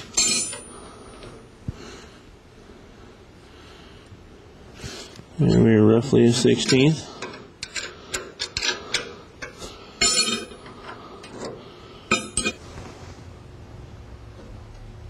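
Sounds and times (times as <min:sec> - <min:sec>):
metal tools clicking and clinking: 0:00.0 - 0:00.7, 0:06.4 - 0:12.6
ringing metal clink: 0:00.1 - 0:00.7, 0:10.0 - 0:10.6, 0:12.1 - 0:12.6.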